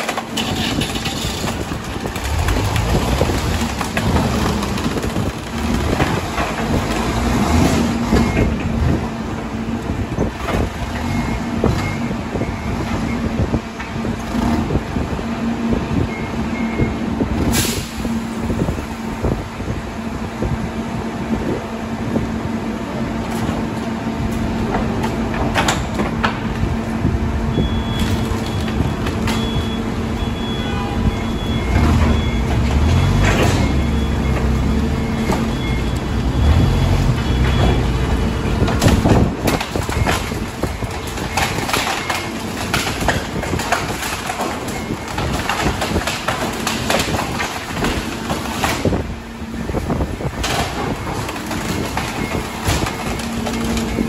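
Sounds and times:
wood pieces clattering: 0.0 - 8.8, 38.6 - 49.1, 49.8 - 54.0
garbage truck humming: 0.0 - 54.0.

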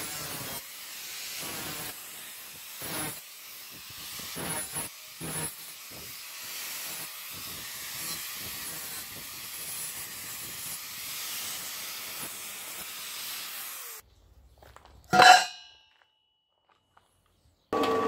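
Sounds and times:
angle grinder cutting steel: 0.0 - 14.0.

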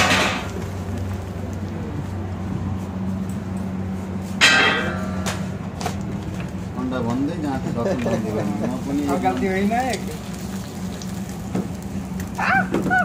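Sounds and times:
low machine hum: 0.0 - 13.0
sharp metallic clank: 4.4 - 5.6.

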